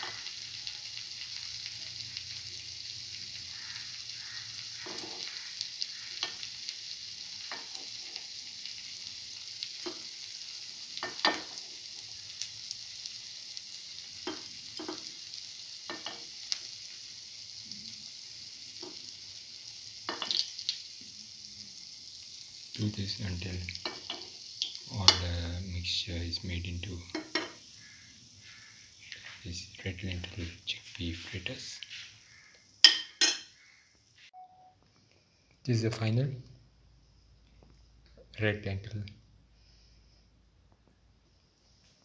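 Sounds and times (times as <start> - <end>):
hot oil sizzling: 0.0 - 34.7, 35.3 - 42.0
metal spoon clinking on pan: 32.8 - 33.5.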